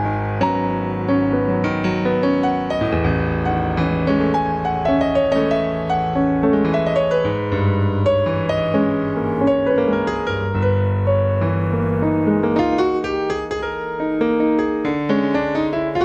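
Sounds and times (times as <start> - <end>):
piano improvisation: 0.0 - 16.0.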